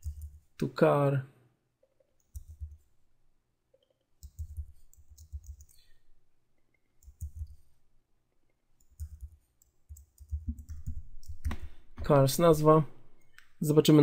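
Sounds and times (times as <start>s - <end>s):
typing on computer keyboard: 0.0s - 0.4s, 2.2s - 2.8s, 3.8s - 5.8s, 7.0s - 7.6s, 8.8s - 11.6s.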